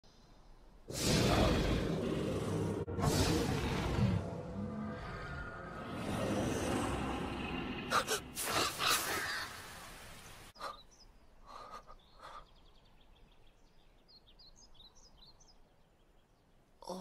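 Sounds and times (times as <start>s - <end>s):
small birds chirping: 5.0s - 17.0s.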